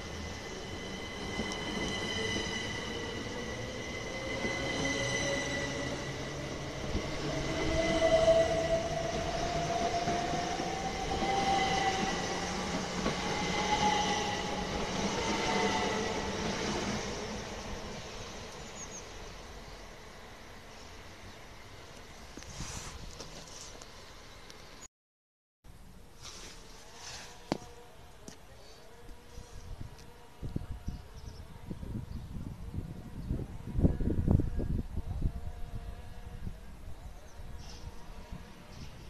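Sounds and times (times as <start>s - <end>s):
train wheels rumbling on rails: 0.0s - 18.2s.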